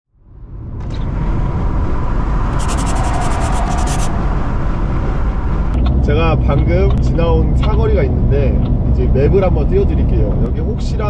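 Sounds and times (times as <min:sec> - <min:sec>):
fast ticking hiss: 0:02.6 - 0:04.1.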